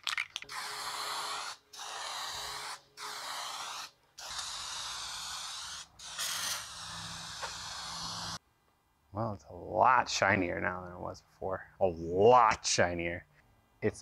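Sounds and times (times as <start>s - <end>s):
aerosol can spraying: 0.4s - 8.4s.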